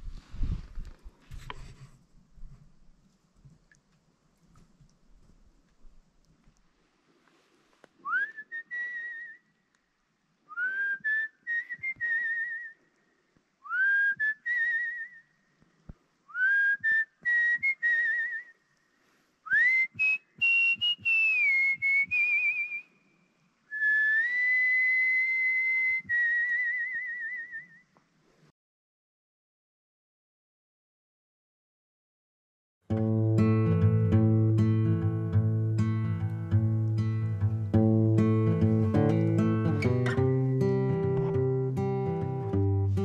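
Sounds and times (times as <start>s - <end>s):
whistled calls: 19.5s - 28.0s.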